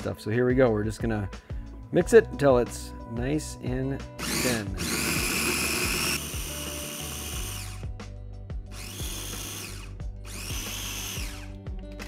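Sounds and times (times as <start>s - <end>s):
food processor motor whine: 4.2s - 7.8s, 8.7s - 11.5s.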